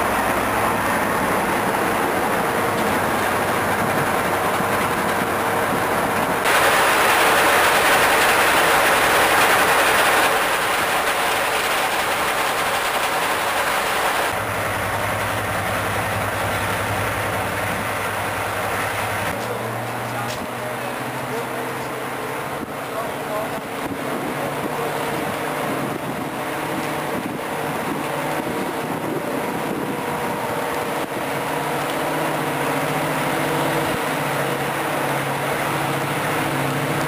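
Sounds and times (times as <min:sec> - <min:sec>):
diesel locomotive engine idling: 0:00.0 - 0:37.0.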